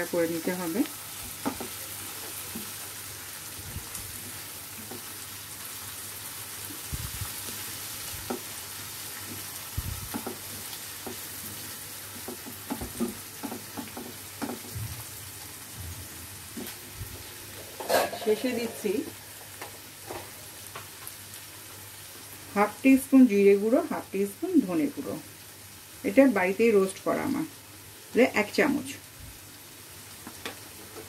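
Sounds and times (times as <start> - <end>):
masala sizzling in oil: 0.0 - 31.0
spatula scraping and tapping pan: 12.2 - 14.8, 17.5 - 21.0.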